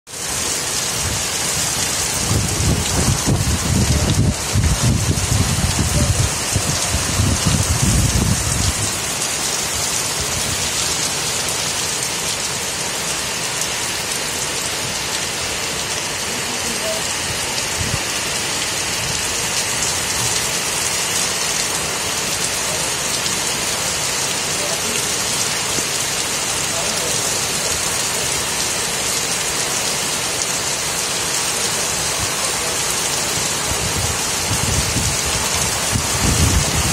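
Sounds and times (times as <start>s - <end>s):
heavy rain on pavement and cars: 0.1s - 36.9s.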